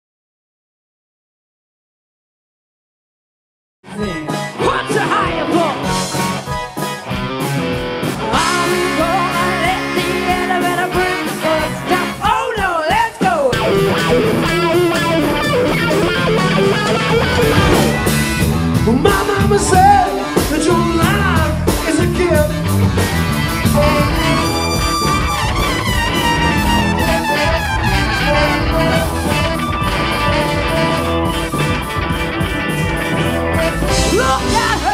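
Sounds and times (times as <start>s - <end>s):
person singing: 3.9s - 6.3s, 8.3s - 17.9s, 18.8s - 22.8s, 23.7s - 25.2s, 33.6s - 34.9s
electric guitar: 3.9s - 12.5s, 13.1s - 34.9s
rock band music: 3.9s - 34.9s.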